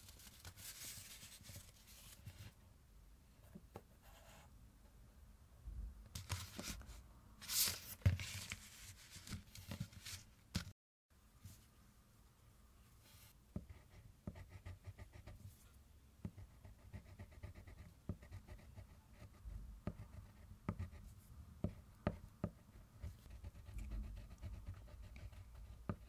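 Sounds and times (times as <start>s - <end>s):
paper rustling: 7.4s - 10.7s.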